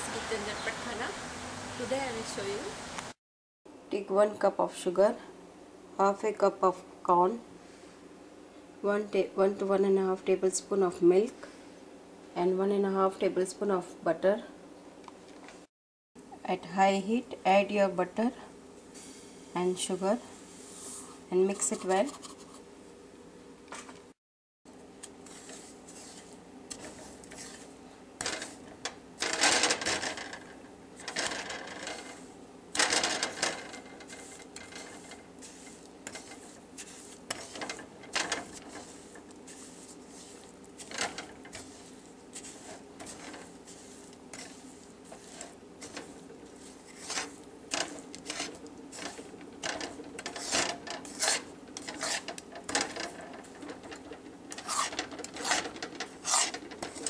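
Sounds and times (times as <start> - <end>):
spatula scraping a pan: 25.2 - 57.0.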